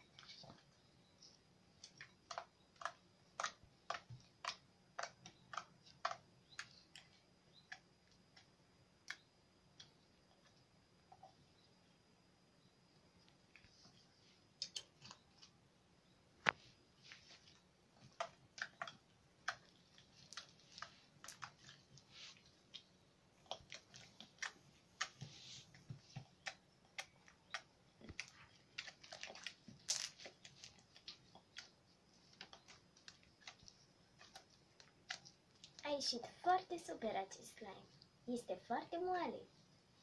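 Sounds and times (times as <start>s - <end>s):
sticky clicks and small pops: 1.8s - 11.3s, 17.5s - 35.9s
slime kneaded by hand: 16.4s - 35.9s.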